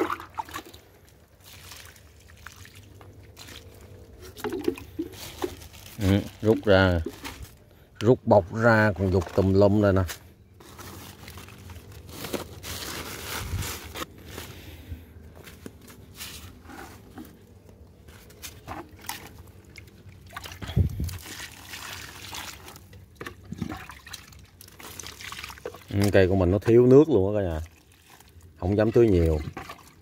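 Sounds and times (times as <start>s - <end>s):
liquid trickling onto soil: 0.0s - 7.7s, 10.6s - 13.7s, 18.1s - 30.0s
handling knocks and rustles: 3.0s - 7.6s, 8.8s - 14.6s, 15.3s - 19.4s.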